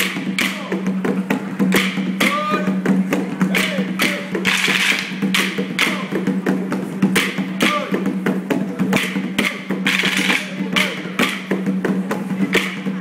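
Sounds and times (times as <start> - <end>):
music: 0.0 - 13.0
wooden sticks clacking: 3.5 - 6.0, 9.0 - 11.4.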